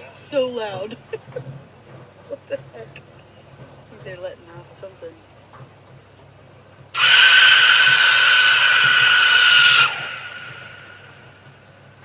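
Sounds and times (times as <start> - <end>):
shrill scream-like sound from sky: 7.0 - 11.2.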